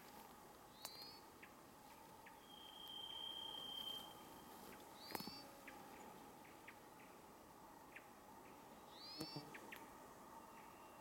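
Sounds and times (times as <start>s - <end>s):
bird whistling long note: 2.4s - 4.4s.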